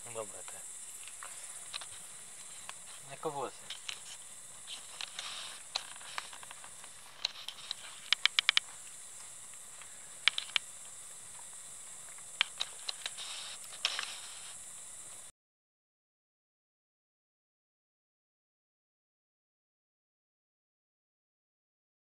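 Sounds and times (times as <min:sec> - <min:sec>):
campfire crackles and pops: 0:00.0 - 0:15.3
fire steady high hiss: 0:00.0 - 0:15.3.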